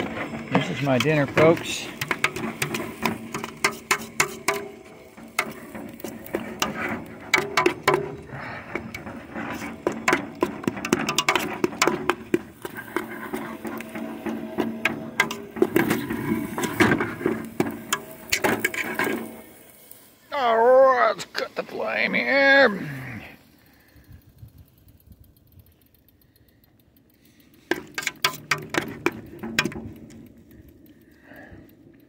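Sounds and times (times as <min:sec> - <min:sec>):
utensil scraping metal pot: 0:00.0 - 0:19.7, 0:27.7 - 0:30.0
steady low hum: 0:00.0 - 0:32.0.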